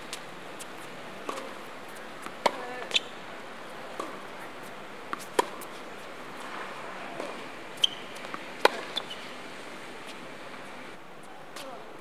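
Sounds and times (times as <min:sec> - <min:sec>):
tennis ball pops off racket: 0:01.2 - 0:01.5, 0:05.1 - 0:05.7, 0:07.2 - 0:07.4, 0:08.2 - 0:09.1.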